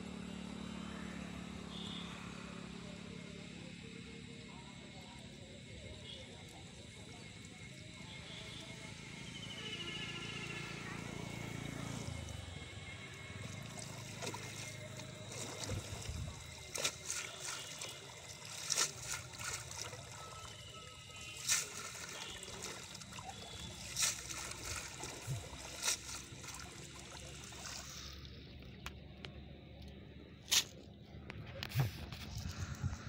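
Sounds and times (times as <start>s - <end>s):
water trickling and splashing: 5.2s - 29.3s
short sharp splashes and knocks: 13.3s - 28.0s.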